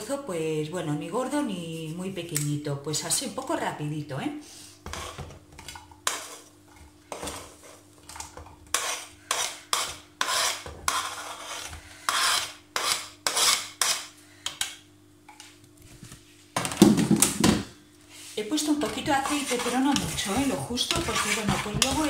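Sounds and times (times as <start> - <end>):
spoon scraping a cutting board: 4.8 - 5.3, 6.0 - 6.5, 8.7 - 14.1, 18.7 - 22.0.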